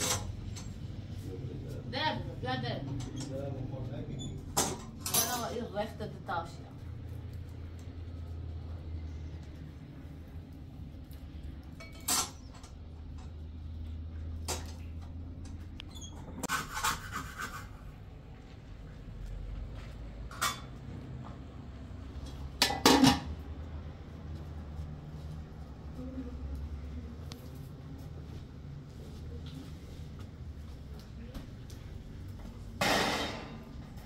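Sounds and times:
dishes clinking and knocking: 4.5 - 5.6, 11.8 - 12.7, 22.5 - 23.4, 32.8 - 33.7.

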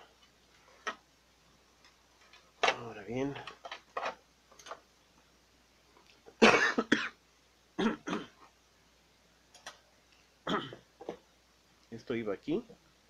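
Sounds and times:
person coughing: 6.4 - 7.2, 7.8 - 8.5, 10.4 - 11.2.

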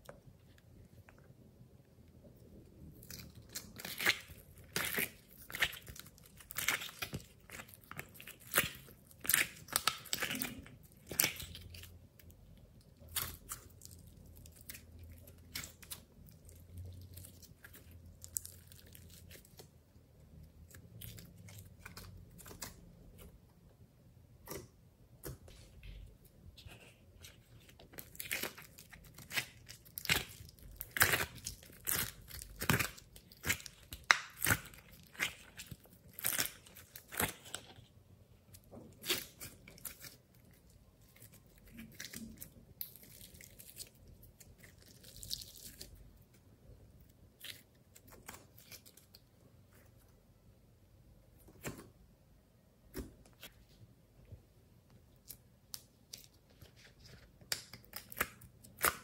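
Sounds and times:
slime crackling and popping: 3.0 - 19.7, 27.8 - 37.8, 57.4 - 59.0.

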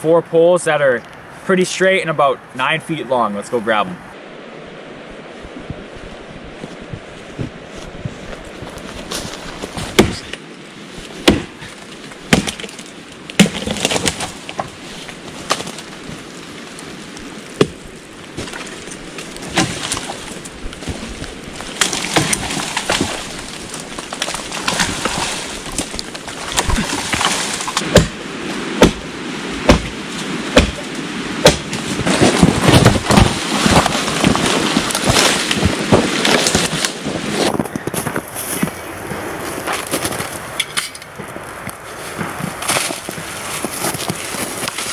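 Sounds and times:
branches and dry leaves rustling: 0.7 - 44.9
axe chopping green wood: 9.8 - 10.4, 11.2 - 11.7, 12.3 - 14.7, 17.6 - 17.8, 19.4 - 20.2, 21.7 - 37.0.

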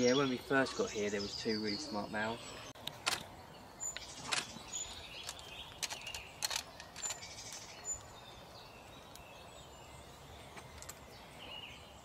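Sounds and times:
songbirds chirping and whistling: 0.0 - 12.0
sharp clicks: 2.8 - 3.3, 5.2 - 7.7.

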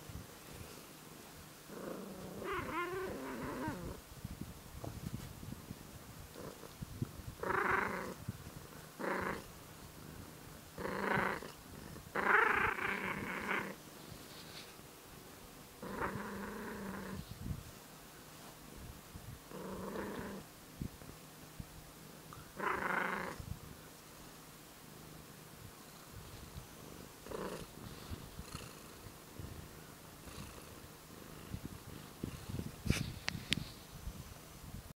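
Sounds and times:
cat purring and growling: 1.6 - 4.0, 6.2 - 13.8, 15.8 - 17.5, 19.3 - 20.5, 22.2 - 23.6, 24.9 - 33.3
cat vocal sound: 1.8 - 4.0.

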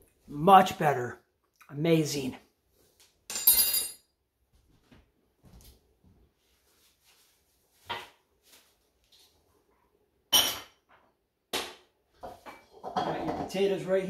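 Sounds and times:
dishes clinking: 10.3 - 10.9, 12.2 - 13.5
dishes clattering on counter: 10.3 - 11.0, 12.2 - 13.5.

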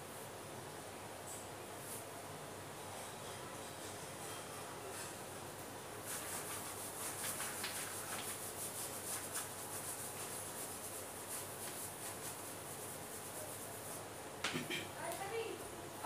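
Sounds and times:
rubbing strokes on plastic sheet: 6.0 - 14.1.

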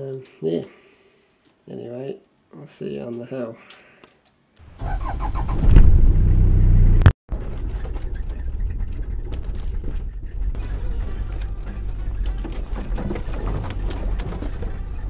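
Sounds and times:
vehicle driving rumble: 4.6 - 15.0
engine starting and revving: 4.7 - 8.0.

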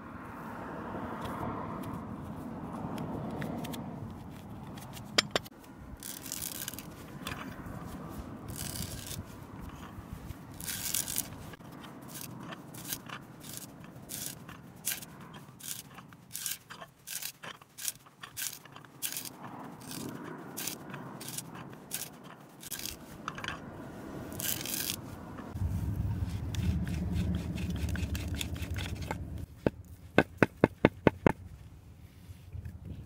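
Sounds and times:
hand auger boring into wood: 6.0 - 7.6, 8.5 - 9.9, 10.5 - 11.5, 12.1 - 23.6, 24.3 - 25.0.

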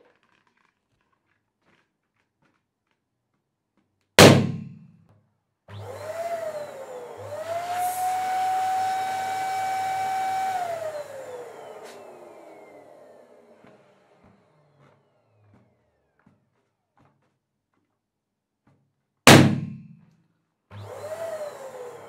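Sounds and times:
balloon bursting: 4.2 - 4.9, 19.3 - 20.0
electric balloon pump whining: 5.7 - 17.3, 20.7 - 22.0.

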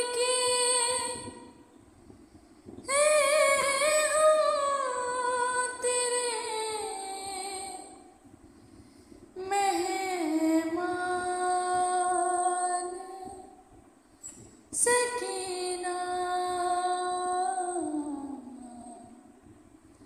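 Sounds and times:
high voice singing a lament: 2.9 - 8.1.

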